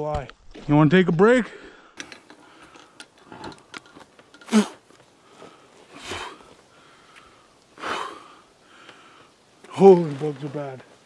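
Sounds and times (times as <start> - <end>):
breathy puffs: 4.4 - 9.4.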